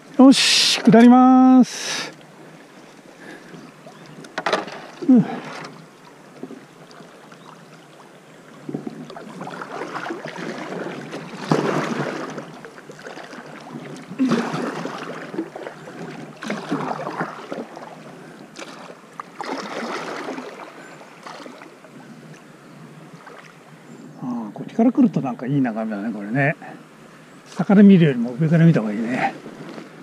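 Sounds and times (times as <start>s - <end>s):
paddle splashing through water: 3.2s - 22.3s, 23.1s - 23.6s, 29.0s - 30.0s.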